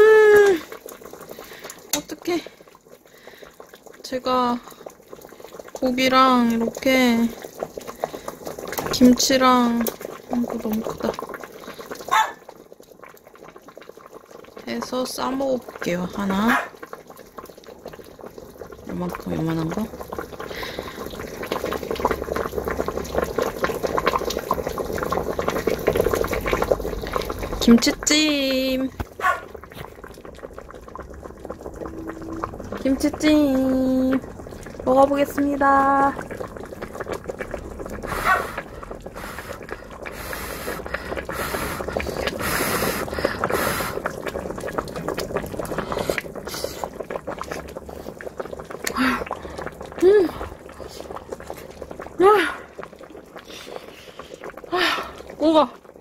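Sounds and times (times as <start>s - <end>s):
stew bubbling in a pot: 0.0s - 56.0s
thick broth popping: 9.8s - 14.6s, 36.2s - 53.8s
person blowing puffs of breath: 38.0s - 44.2s, 53.4s - 55.2s.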